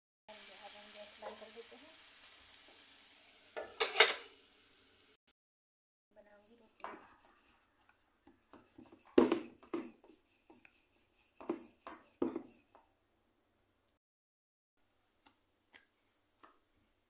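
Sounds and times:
rolling pin knocking on wooden board: 0:09.2 - 0:10.0.

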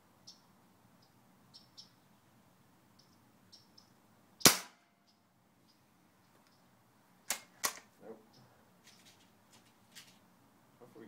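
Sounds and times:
faint high bird chirps: 0:00.2 - 0:02.2, 0:02.9 - 0:06.7
air rifle shot: 0:04.4 - 0:04.9.

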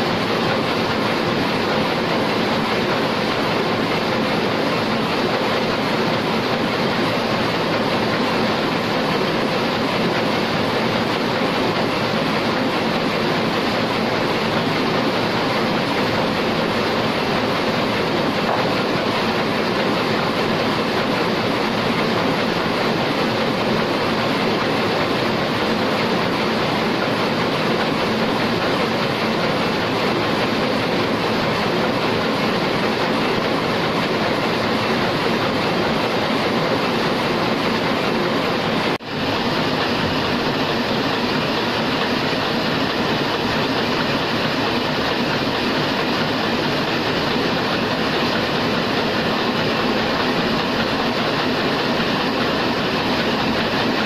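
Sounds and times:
printing press clattering: 0:00.0 - 0:54.0.

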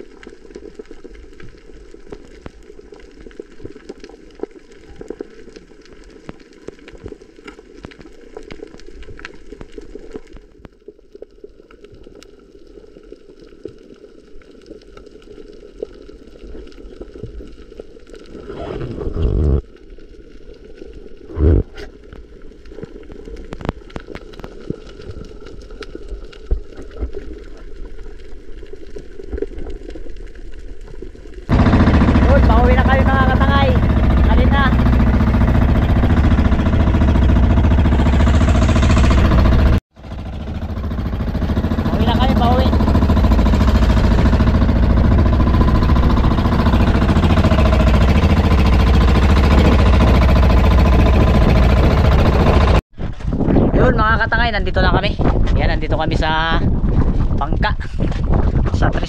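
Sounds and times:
faint crackling clicks: 0:00.0 - 0:21.2, 0:21.8 - 0:31.5
underwater water rush: 0:00.0 - 0:52.8
gurgling bubbles: 0:11.9 - 0:31.5.

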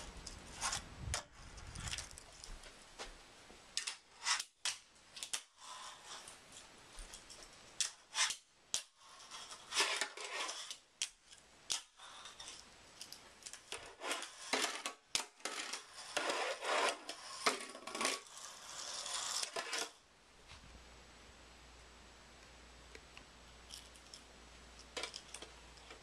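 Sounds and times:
small wheels rolling: 0:11.8 - 0:20.0.

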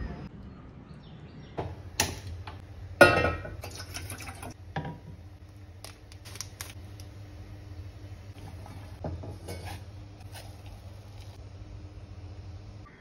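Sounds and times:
metal pot clanging on grate: 0:03.0 - 0:03.9, 0:09.0 - 0:09.8
plastic sachet tearing: 0:05.8 - 0:07.1.

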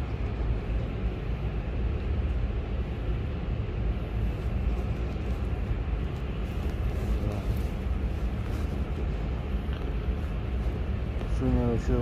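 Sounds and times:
machinery and ventilation rumble: 0:00.0 - 0:12.0
faint clicks and rustles: 0:04.1 - 0:11.5.

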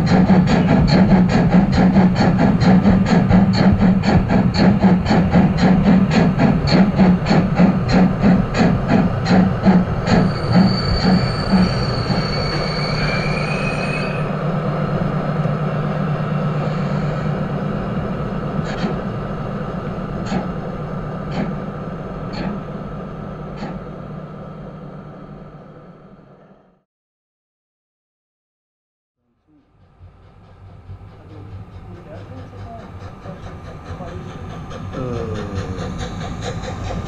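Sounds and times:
rhythmic rail beat: 0:00.0 - 0:12.2, 0:29.6 - 0:37.0
model train running on track: 0:00.0 - 0:26.4, 0:29.3 - 0:37.0.

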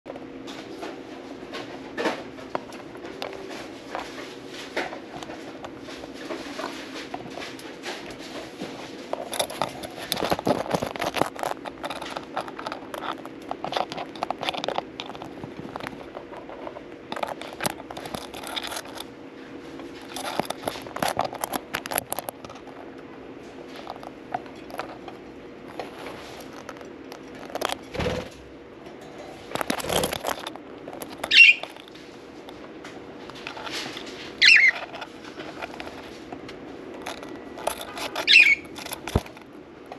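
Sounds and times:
steady low hum: 0:00.1 - 0:39.9
budgies clicking and scratching: 0:02.1 - 0:19.2, 0:19.8 - 0:27.9, 0:29.4 - 0:39.5
budgie chirp: 0:31.3 - 0:31.6, 0:34.4 - 0:34.7, 0:38.2 - 0:38.7.

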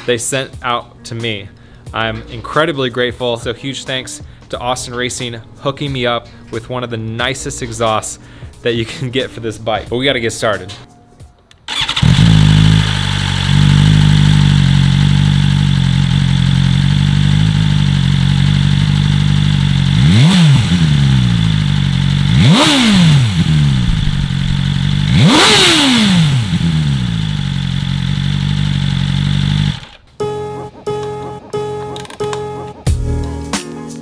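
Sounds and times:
motorcycle engine idling and revving: 0:11.7 - 0:30.2.

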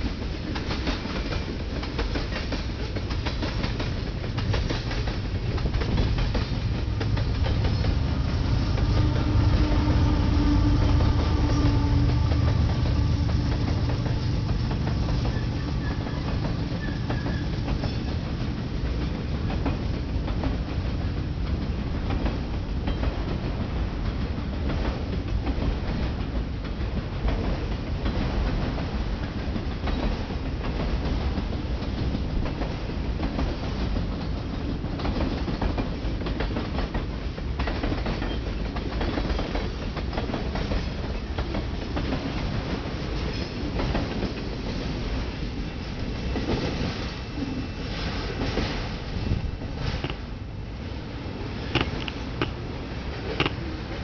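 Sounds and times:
diesel locomotive engine hum: 0:00.0 - 0:28.1, 0:39.0 - 0:54.0
wheels clacking over rail joints: 0:00.0 - 0:31.1, 0:51.5 - 0:54.0
freight train rumbling past: 0:00.0 - 0:54.0.

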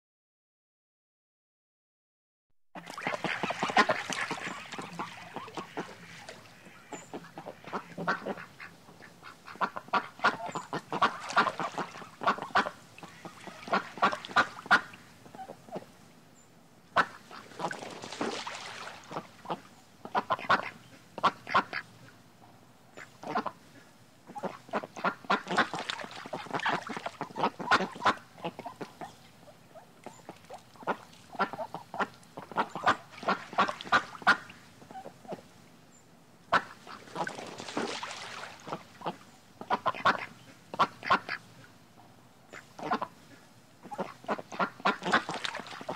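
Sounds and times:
ducks quacking: 0:02.8 - 0:15.9, 0:17.0 - 0:21.9, 0:23.0 - 0:35.5, 0:36.5 - 0:41.7, 0:42.5 - 0:45.9.

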